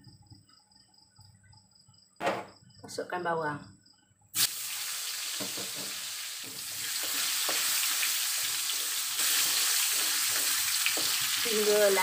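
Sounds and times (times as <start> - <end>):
onions sizzling in hot oil: 4.4 - 12.0.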